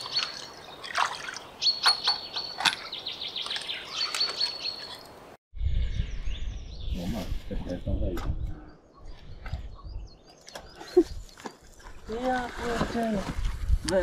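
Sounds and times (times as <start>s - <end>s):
light water splashes: 0.0s - 2.0s
small birds chirping: 0.0s - 12.6s
wind rumble on microphone: 5.5s - 10.2s, 10.8s - 14.0s.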